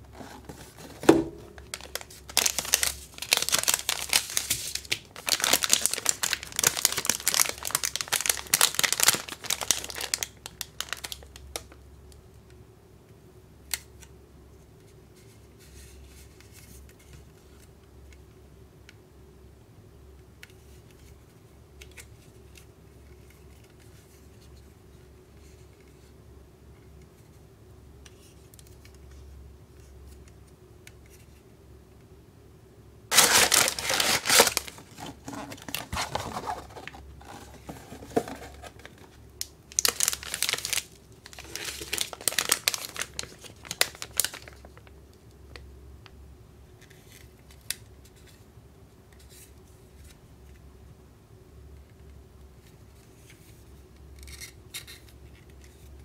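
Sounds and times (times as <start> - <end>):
plastic candy packets crinkling: 1.5 - 11.7, 33.1 - 44.9.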